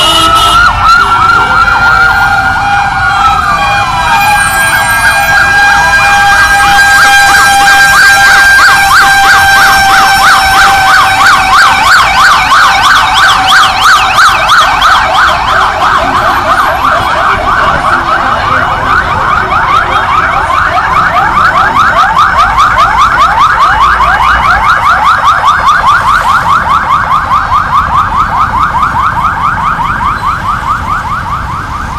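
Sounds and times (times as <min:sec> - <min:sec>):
emergency sirens wailing and yelping: 0:00.0 - 0:31.9.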